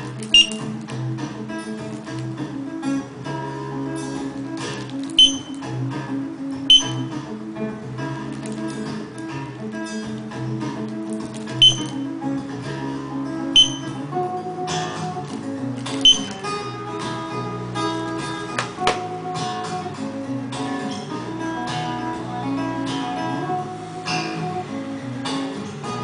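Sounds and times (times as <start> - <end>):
strummed acoustic guitar music: 0.0 - 26.0
short high-pitched beeps: 0.3 - 0.6, 5.2 - 5.6, 6.7 - 7.1, 11.6 - 12.0, 13.6 - 14.0, 16.0 - 16.4.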